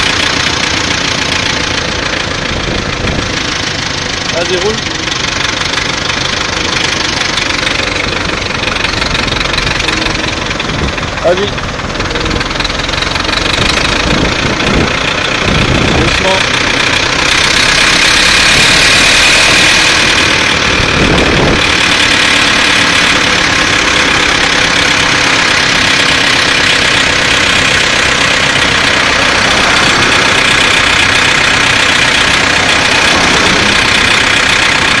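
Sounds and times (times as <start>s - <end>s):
old tractor engine running: 0.0s - 35.0s
low rumble: 0.7s - 25.8s.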